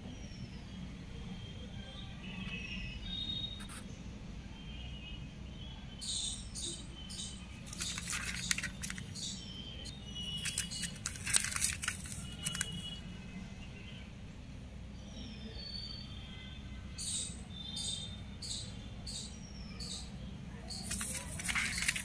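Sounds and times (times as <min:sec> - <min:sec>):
faint bird chirps: 0:00.0 - 0:14.1, 0:14.9 - 0:22.0
bird scratching on paper: 0:03.6 - 0:03.8, 0:07.6 - 0:09.3, 0:10.2 - 0:12.9, 0:20.7 - 0:22.0.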